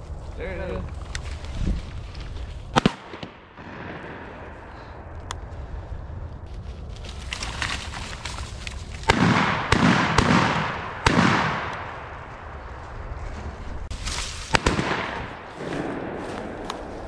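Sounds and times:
shotgun shots with echo: 2.8 - 4.4, 9.1 - 12.0, 14.5 - 16.6.

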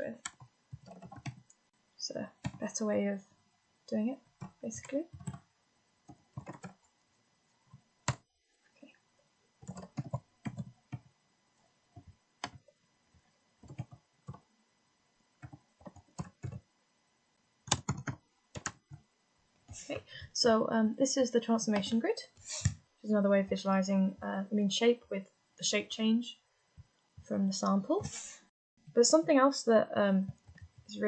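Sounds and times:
computer keyboard typing: 0.1 - 1.6, 2.3 - 2.8, 4.4 - 5.4, 6.1 - 6.9, 9.6 - 11.1, 12.0 - 12.7, 13.6 - 14.4, 15.4 - 16.6, 17.7 - 19.0.

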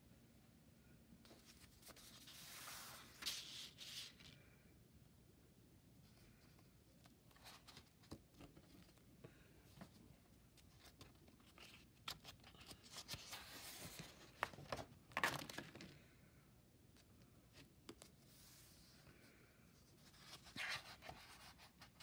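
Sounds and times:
sketchbook page turning: 1.3 - 4.3, 10.7 - 15.6, 20.0 - 22.0.

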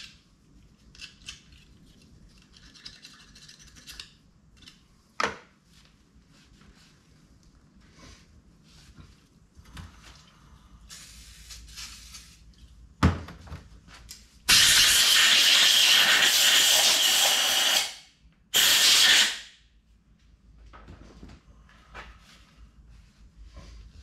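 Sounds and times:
pressurized air jet hissing: 14.5 - 18.0, 18.6 - 19.5.

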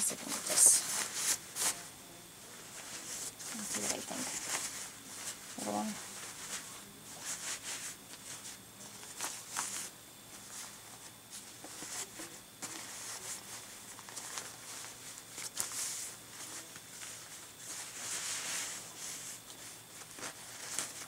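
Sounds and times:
fabric rustling and rubbing: 0.2 - 1.9, 2.5 - 21.0.

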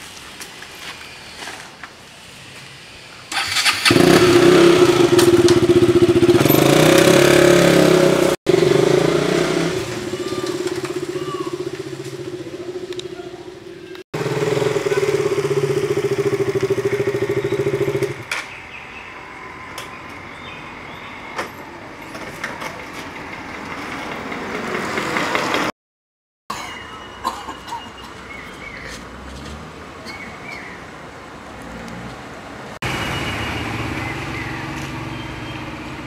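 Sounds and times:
outdoor background noise: 0.0 - 25.7, 26.5 - 36.0
motorcycle engine running: 3.8 - 18.2.

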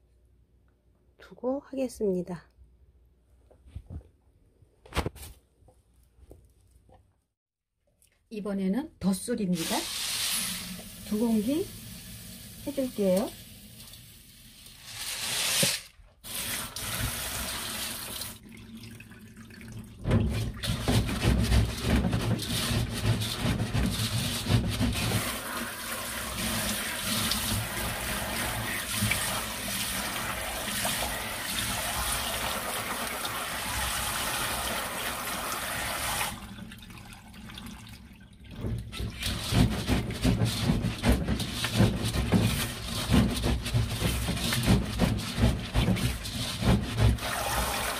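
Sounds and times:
wet grains swished and rubbed: 39.3 - 47.2.

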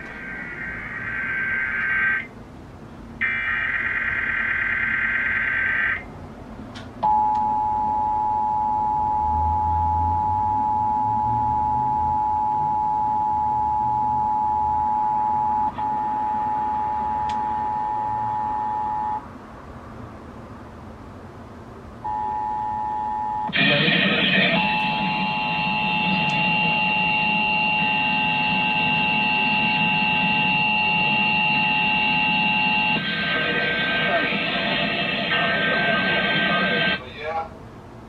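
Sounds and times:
warbling digital data screech: 0.1 - 2.3, 3.2 - 6.1, 23.5 - 37.0
two-tone alert signal: 22.1 - 33.2.

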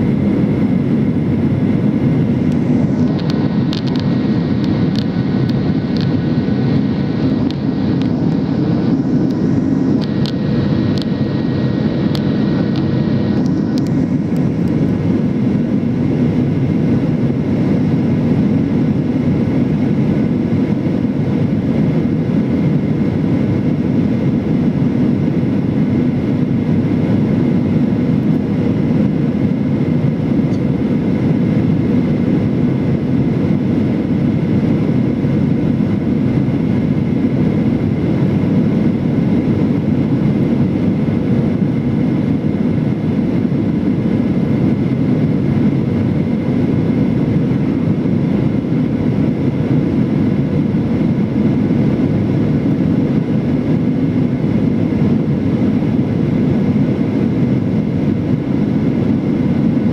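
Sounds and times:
airliner cabin roar: 0.0 - 59.9.

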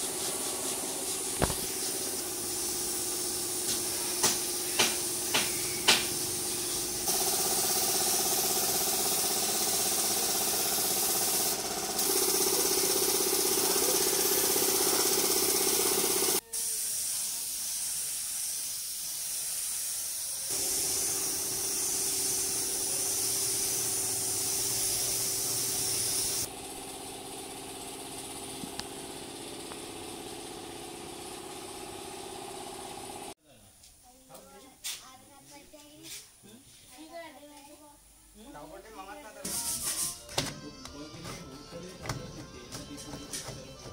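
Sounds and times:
spray gun hissing: 0.0 - 26.5
steady machine hum: 6.4 - 16.4.

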